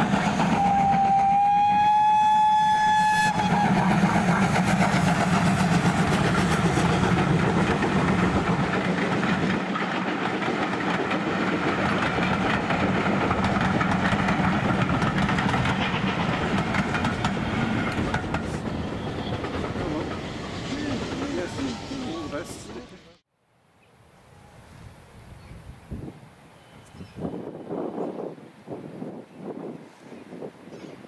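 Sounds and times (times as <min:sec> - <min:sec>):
steam locomotive whistle: 0:00.0 - 0:04.3
train coaches rolling past: 0:00.0 - 0:23.2.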